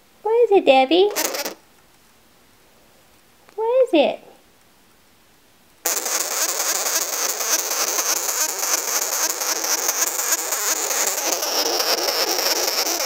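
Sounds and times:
sugar glider rasping buzz: 1.0s - 1.6s, 5.8s - 13.0s.

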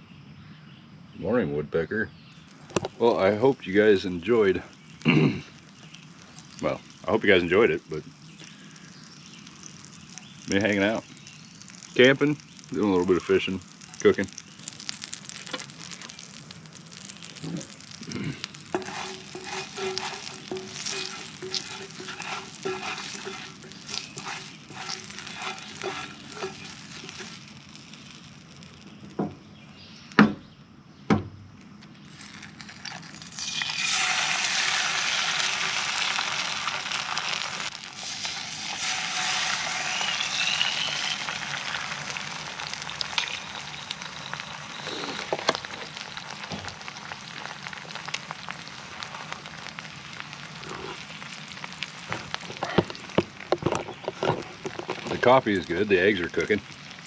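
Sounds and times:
eggs sizzling in oil: 2.4s - 30.2s, 32.0s - 57.0s
oil crackling: 2.4s - 30.3s, 31.6s - 57.0s
eggs knocking on pan: 18.6s - 27.4s, 29.0s - 29.4s.

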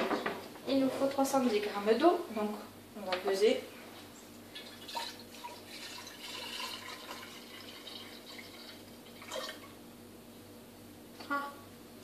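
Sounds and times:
water pouring into a bowl: 4.6s - 9.8s.

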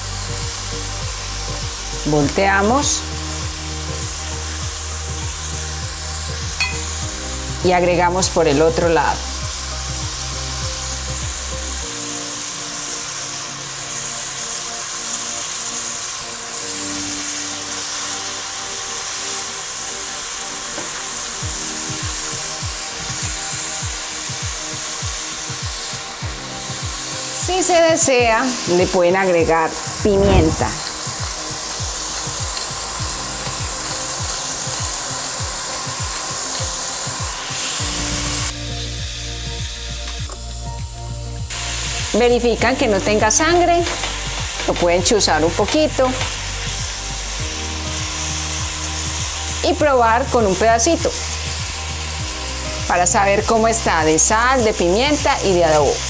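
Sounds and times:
background music: 0.0s - 56.0s
meat sizzling in oil: 0.0s - 56.0s
pepper mill grinding: 20.1s - 40.5s.

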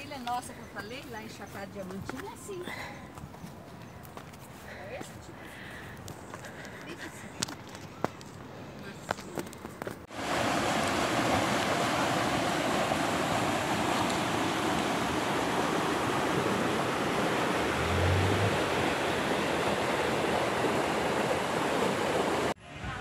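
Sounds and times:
stream rushing over rocks: 10.0s - 22.6s.

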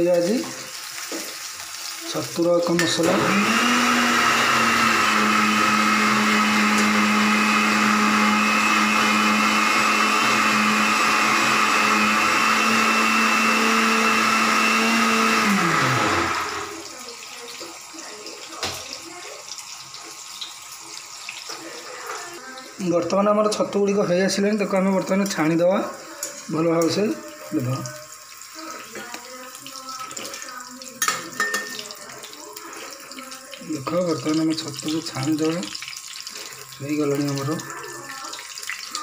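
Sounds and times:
mushrooms sizzling in oil: 0.0s - 39.0s
small electric motor running: 3.3s - 16.9s.

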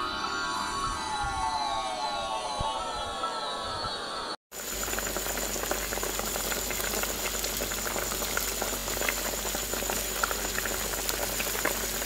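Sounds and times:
faint high whine: 0.0s - 6.0s
curry bubbling and popping: 4.6s - 12.0s.

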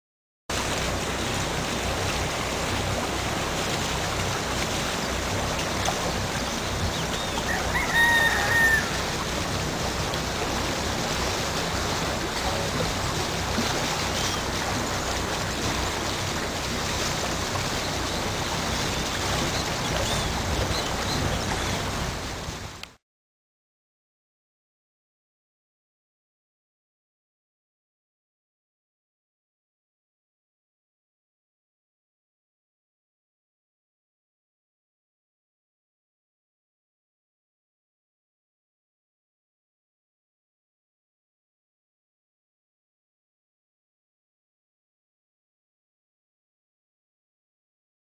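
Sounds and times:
water rushing past a boat: 0.5s - 23.0s
bird calling: 6.6s - 9.1s, 17.8s - 21.8s.

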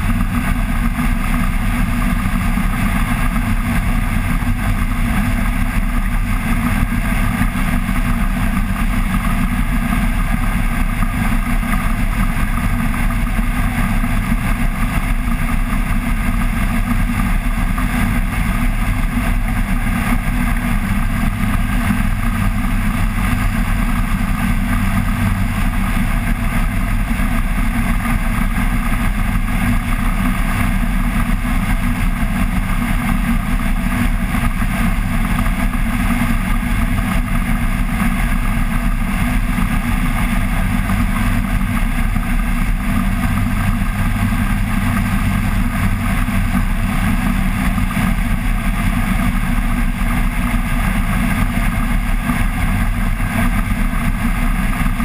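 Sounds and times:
microlight engine and propeller: 0.0s - 55.0s.

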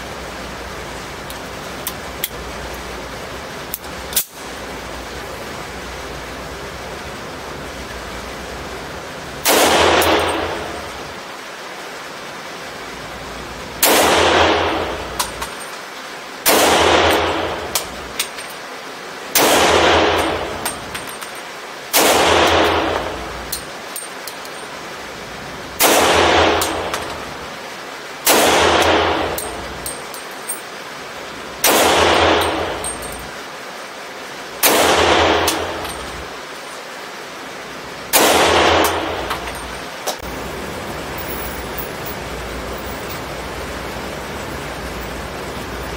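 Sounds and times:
pistol shots echoing indoors: 9.4s - 10.9s, 13.8s - 15.2s, 16.4s - 17.9s, 19.4s - 20.6s, 21.9s - 23.3s, 25.8s - 27.2s, 28.3s - 29.6s, 31.6s - 32.9s, 34.6s - 36.1s, 38.1s - 39.4s.

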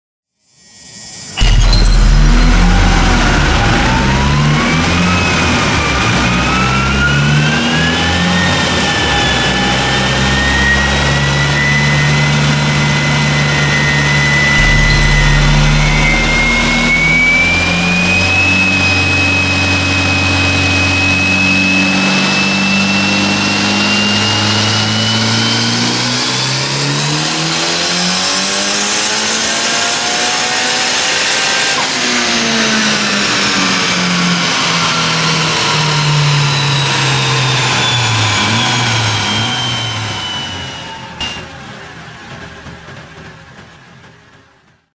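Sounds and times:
turbo whine: 0.4s - 41.5s
car engine under load: 1.4s - 44.7s.

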